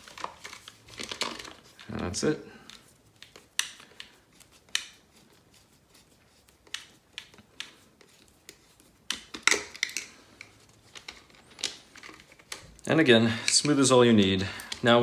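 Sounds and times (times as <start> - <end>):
plastic parts clicking and knocking: 0.0 - 1.9, 2.6 - 5.0, 6.6 - 13.8.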